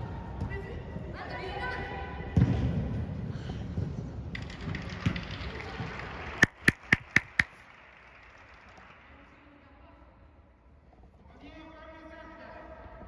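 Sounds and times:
soccer ball thud: 6.4 - 7.5
short sharp pips: 6.4 - 7.6.

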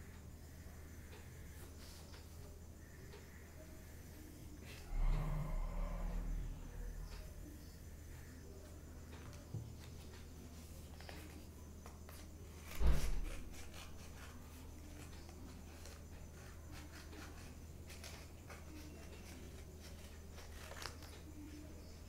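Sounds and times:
steady low hum: 0.0 - 13.5
paper rustling: 9.2 - 21.6
scissors snipping paper: 12.1 - 21.5.

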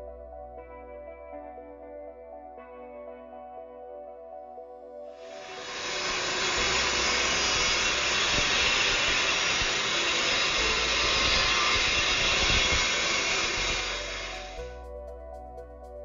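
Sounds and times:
miter saw cutting wood: 5.2 - 14.6.

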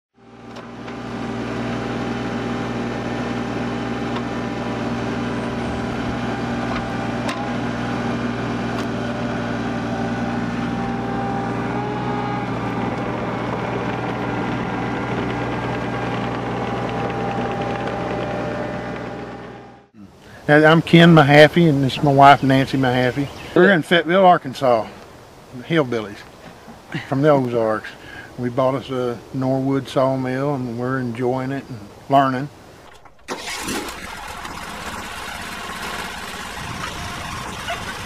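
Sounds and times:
excavator diesel engine running: 0.2 - 20.0, 32.8 - 38.0.

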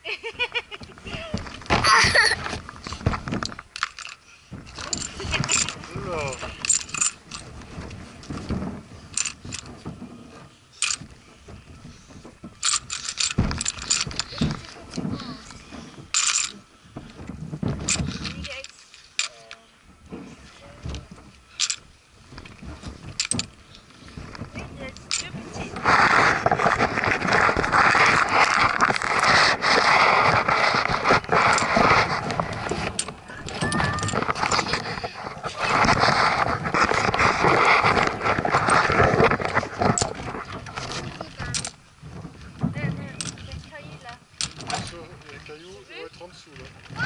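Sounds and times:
dull thump on mat: 1.1 - 3.4
small objects clicking and scraping: 2.4 - 11.1, 11.8 - 16.7, 17.8 - 19.7, 20.9 - 41.8
camera rubbing against microphone: 22.2 - 47.0.

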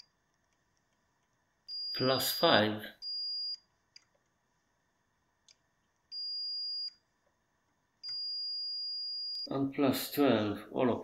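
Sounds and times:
multimeter continuity beeps: 1.6 - 2.4, 3.0 - 3.8, 6.1 - 7.1, 8.0 - 9.5.

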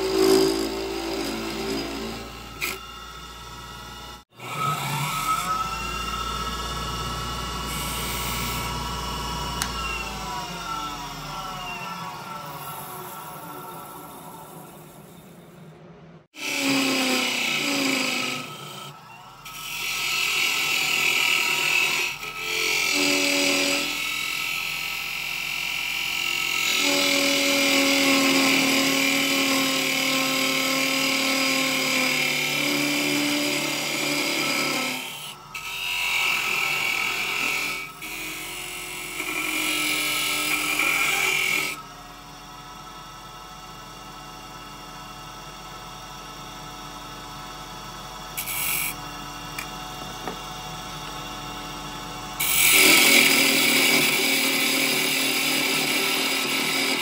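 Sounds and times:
parting tool cutting wood: 0.0 - 13.6, 16.4 - 25.0, 48.3 - 57.0
lathe motor running: 0.0 - 15.3, 16.4 - 57.0.

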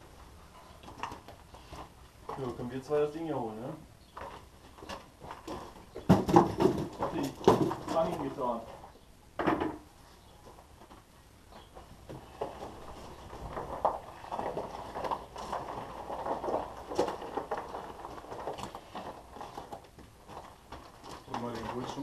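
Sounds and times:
crunching on gravel: 11.6 - 22.0.

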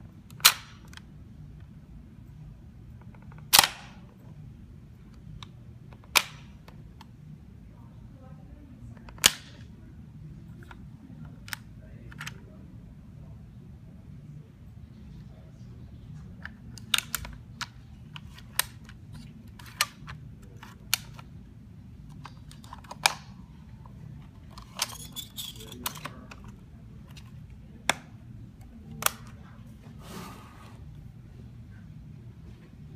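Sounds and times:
low steady hum: 0.0 - 32.9
plastic clicks and snaps: 5.1 - 7.1, 9.0 - 9.7, 11.4 - 12.4, 16.2 - 21.3, 22.1 - 23.4, 25.8 - 29.4.

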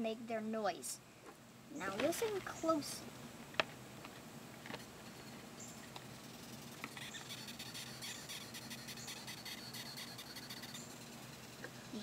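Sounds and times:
insect high-pitched squeaking chirr: 4.7 - 12.0.

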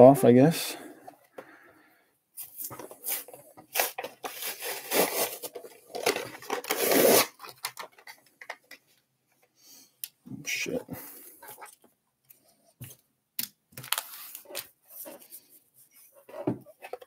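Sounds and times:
plastic blister rustling: 2.4 - 8.8
cardboard ripping: 3.0 - 7.6.

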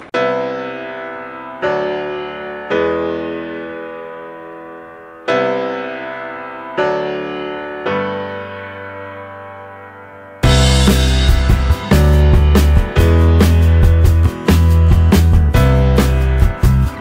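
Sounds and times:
sustained keyboard chords: 0.0 - 17.0.

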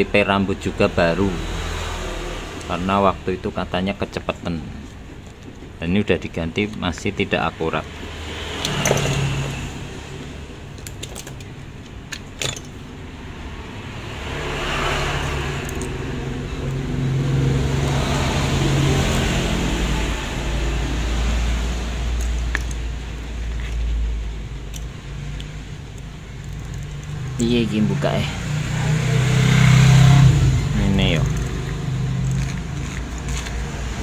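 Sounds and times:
watch strap clicks and rustles: 15.2 - 16.0, 22.0 - 24.0, 24.6 - 27.4, 31.1 - 34.0.

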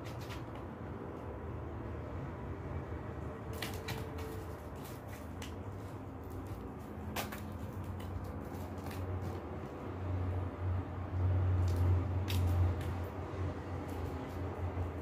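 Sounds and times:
cat claws scraping plastic basket: 0.0 - 1.0, 3.4 - 10.4, 11.6 - 15.0.

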